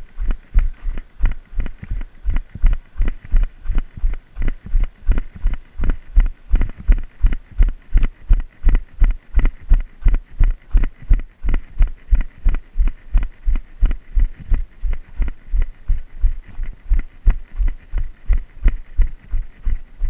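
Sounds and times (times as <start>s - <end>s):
running footsteps on dirt: 0.0s - 20.0s.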